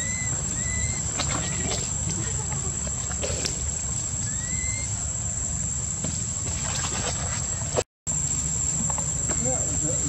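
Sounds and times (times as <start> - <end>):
short rising chirp: 0.0 - 1.6, 4.2 - 5.0
high-pitched insect drone: 0.0 - 6.0, 8.1 - 10.0.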